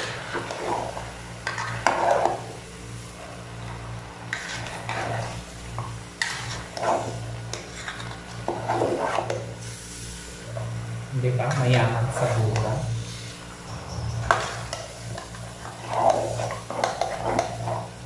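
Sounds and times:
metal spatula scraping a pot: 0.0 - 2.4, 4.3 - 5.4, 6.2 - 9.4, 14.2 - 17.9.

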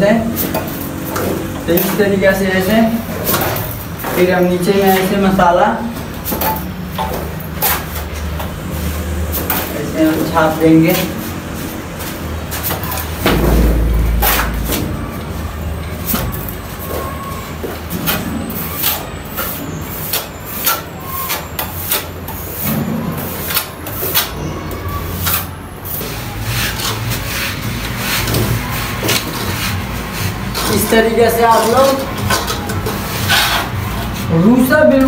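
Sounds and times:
low background rumble: 13.2 - 16.8.

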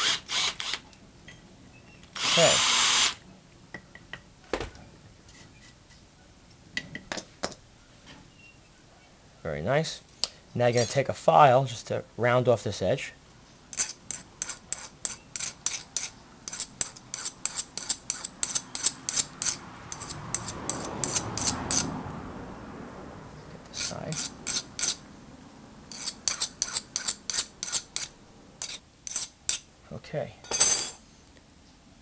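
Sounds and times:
file rasping on metal: 13.7 - 21.9, 23.7 - 25.0, 25.9 - 29.6.

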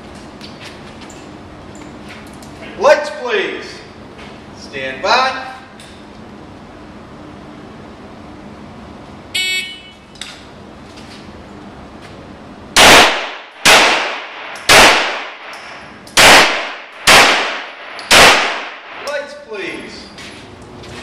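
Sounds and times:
gunshots ringing indoors: 12.8 - 19.1.

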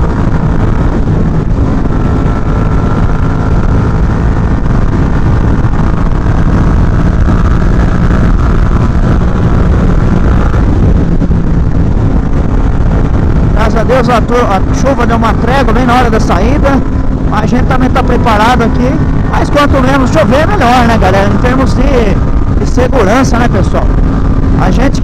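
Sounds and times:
motorcycle engine running: 0.0 - 25.0
wind rush on microphone: 0.0 - 25.0.

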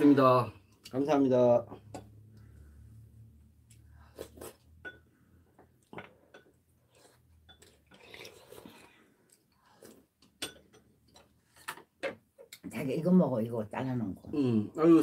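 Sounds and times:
quiet chewing: 6.8 - 10.4.

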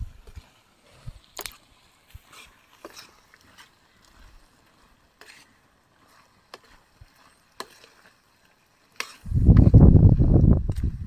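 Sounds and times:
metal ladle scraping a pan: 2.3 - 3.2, 5.2 - 5.5, 9.0 - 9.2.

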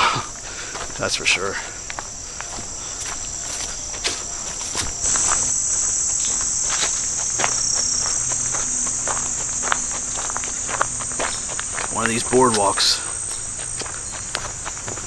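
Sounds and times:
footsteps on dirt trail: 0.0 - 15.0
insects chorus: 0.0 - 15.0.

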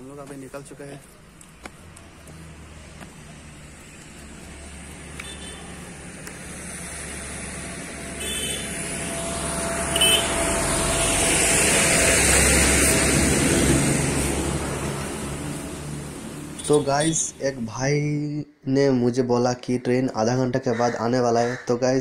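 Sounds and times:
vehicle passing by: 1.6 - 17.4.

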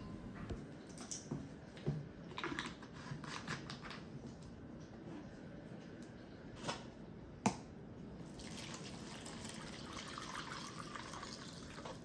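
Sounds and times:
water pouring and splashing: 8.3 - 12.0.

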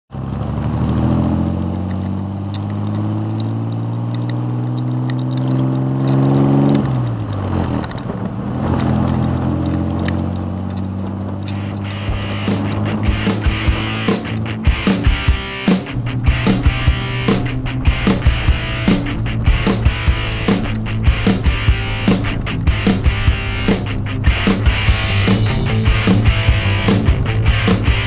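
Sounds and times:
truck engine accelerating: 0.1 - 28.0.

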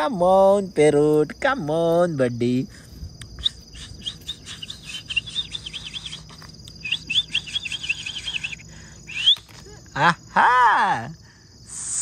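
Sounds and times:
high-pitched insect drone: 0.0 - 12.0
bird chirping: 3.3 - 9.6.

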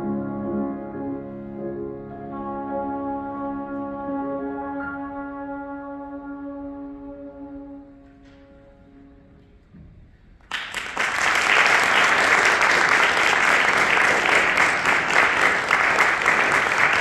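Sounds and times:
audience applause: 10.4 - 17.0.

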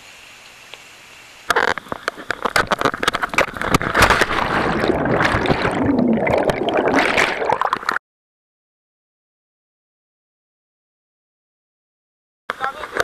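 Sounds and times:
plunge into water: 1.5 - 8.0
water churning and gurgling: 1.5 - 8.0.

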